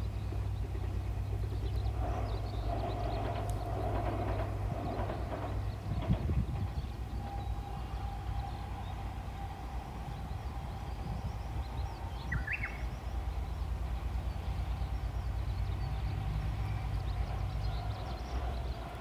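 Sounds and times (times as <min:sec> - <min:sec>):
bird chirping: 0:10.1 - 0:18.9.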